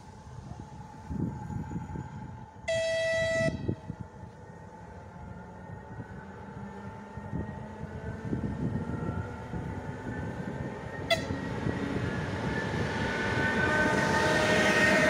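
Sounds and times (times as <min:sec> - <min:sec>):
train rail rumble: 0:00.0 - 0:15.0
short train horn blip: 0:02.7 - 0:03.7, 0:11.1 - 0:11.4.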